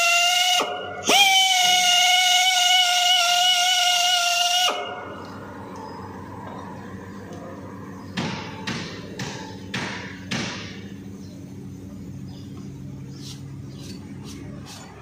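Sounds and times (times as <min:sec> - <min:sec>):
steady low hum: 0:00.0 - 0:15.0
sharp knocks: 0:08.1 - 0:10.8.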